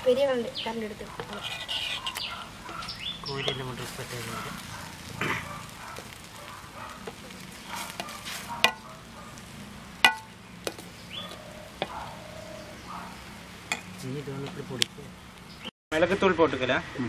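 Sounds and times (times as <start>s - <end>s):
egg sizzling: 0.0s - 15.6s
spoon scraping metal plate: 1.2s - 3.7s.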